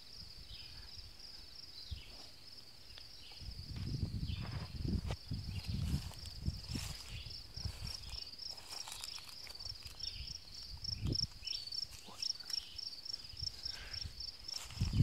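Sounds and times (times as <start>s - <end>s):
insects chirping: 0.0s - 15.0s
footsteps in grass: 3.3s - 12.7s, 14.4s - 15.0s.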